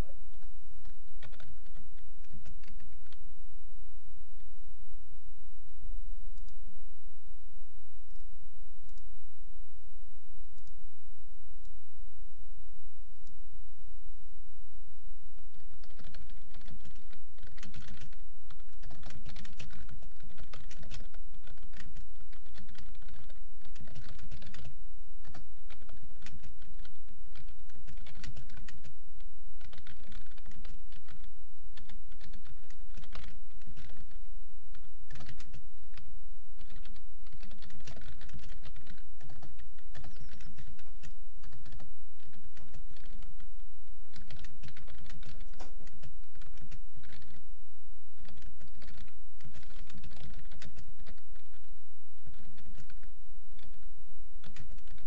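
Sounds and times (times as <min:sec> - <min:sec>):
steady low hum: 0:00.0 - 0:55.0
fast keyboard typing: 0:00.3 - 0:03.2, 0:15.4 - 0:47.4, 0:48.2 - 0:55.0.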